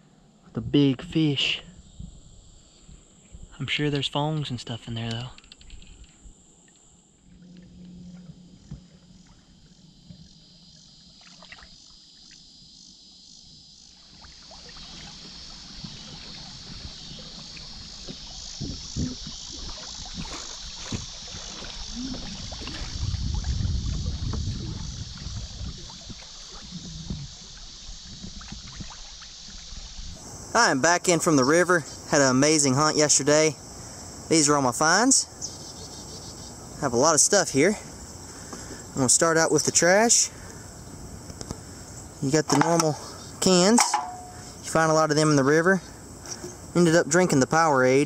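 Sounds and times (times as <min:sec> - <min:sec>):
insects chirring: 0:00.0 - 0:48.0
water rushing around hull: 0:06.6 - 0:12.5, 0:13.8 - 0:35.2
paddle splashes: 0:07.2 - 0:12.4, 0:13.9 - 0:30.3.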